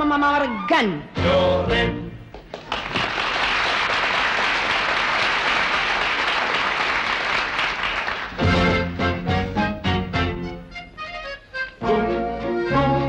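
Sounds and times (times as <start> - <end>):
studio audience applauding: 2.4 - 8.5.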